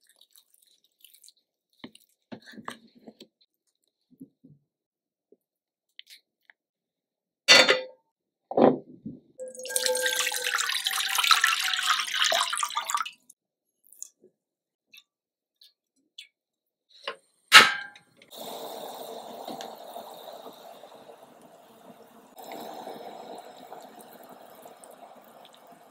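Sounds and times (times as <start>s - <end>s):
water boiling: 9.4s - 13.3s, 18.3s - 25.9s
water pouring into pot: 9.4s - 13.3s, 18.3s - 25.9s.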